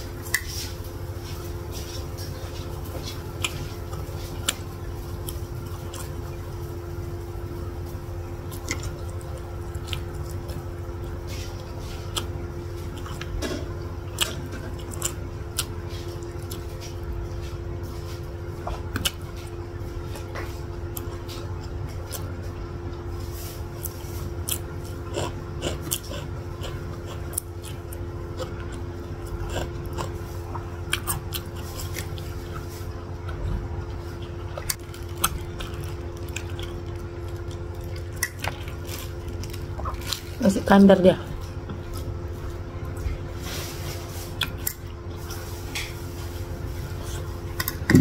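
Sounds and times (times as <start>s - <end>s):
chewing and biting meat: 0.0s - 6.5s, 8.4s - 40.4s, 41.4s - 45.5s
steady low hum: 0.0s - 48.0s.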